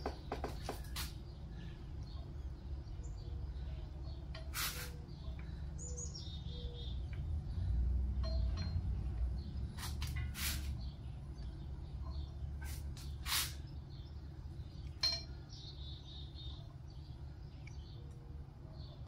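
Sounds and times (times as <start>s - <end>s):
steady low hum: 0.0s - 19.0s
short hissing bursts: 4.5s - 5.0s, 9.8s - 10.9s, 12.6s - 13.7s
metal tools clinking: 8.2s - 9.2s, 14.9s - 15.4s.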